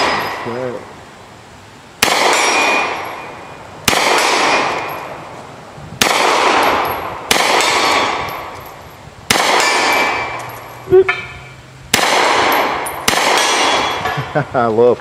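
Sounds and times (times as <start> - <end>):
gunshots: 0.0 - 0.5, 2.0 - 5.0, 6.0 - 8.5, 9.3 - 10.4, 11.9 - 14.1
steel target ringing: 0.0 - 0.8, 2.0 - 5.2, 6.0 - 14.2.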